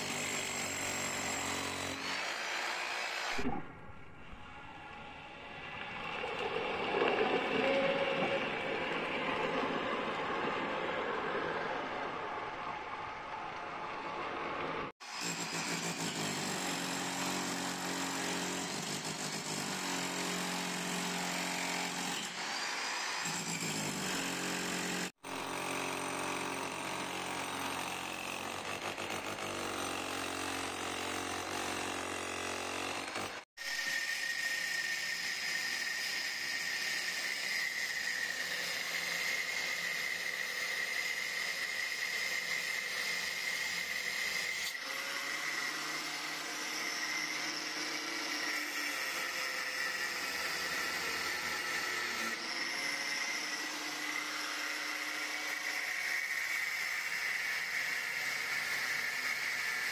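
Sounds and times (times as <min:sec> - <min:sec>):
demolition hammer on concrete: 0:15.2 - 0:33.5.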